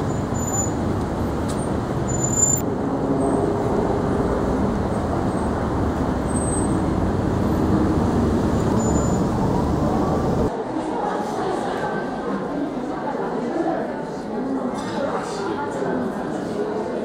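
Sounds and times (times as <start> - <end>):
road vehicles rumbling past: 0.0 - 10.5.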